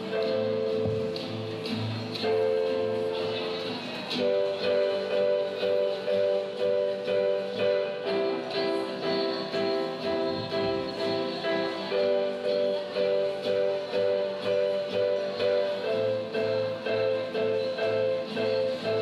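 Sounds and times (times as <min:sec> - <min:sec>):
young female voices singing: 0:07.8 - 0:18.8.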